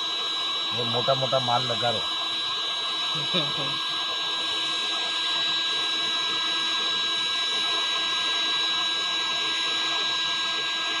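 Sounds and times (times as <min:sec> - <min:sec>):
heat gun fan whining: 0:00.0 - 0:11.0.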